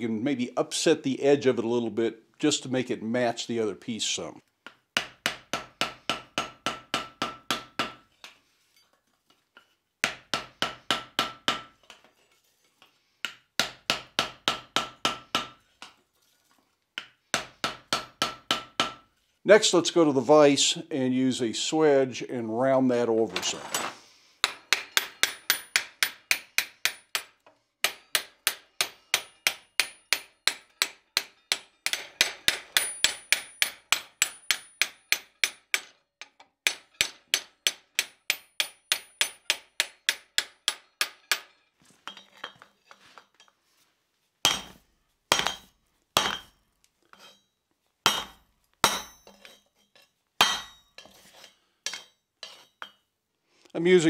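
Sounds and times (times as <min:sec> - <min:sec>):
hammer ringing on hot steel: 0:31.2 - 0:35.6, 0:44.5 - 0:46.6, 0:48.1 - 0:49.6, 0:50.4 - 0:50.9.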